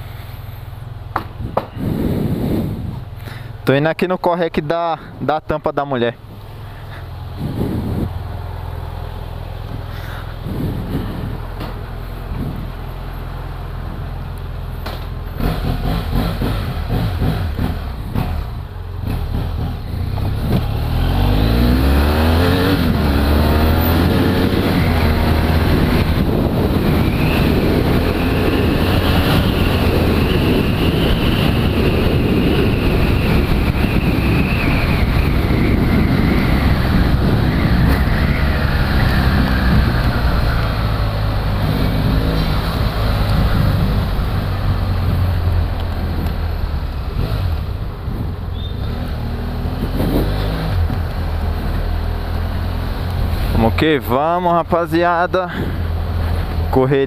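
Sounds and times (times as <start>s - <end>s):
wind and road noise: 0.0s - 57.0s
motorcycle engine revving: 15.3s - 53.7s.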